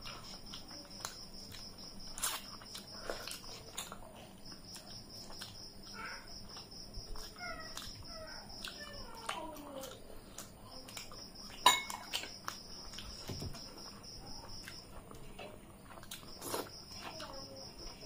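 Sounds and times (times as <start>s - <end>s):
animal cries: 7.3s - 9.5s.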